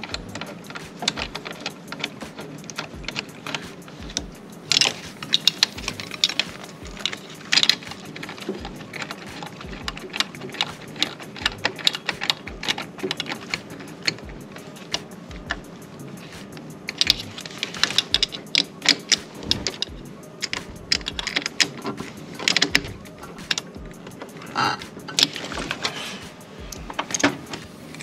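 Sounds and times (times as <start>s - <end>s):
socket ratchet clicking: 0.0s - 28.0s.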